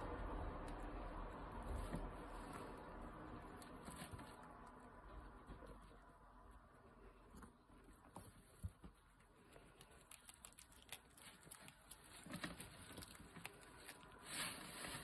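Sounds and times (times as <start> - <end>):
guinea pig chewing greens: 0.0 - 15.0
hay rustling: 14.0 - 15.0.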